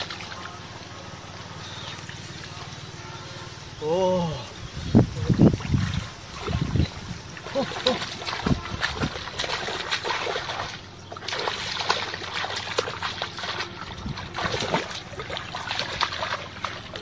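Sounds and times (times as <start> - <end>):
small water splashes: 0.0 - 3.0, 5.2 - 17.0
hands sloshing in muddy water: 5.6 - 17.0.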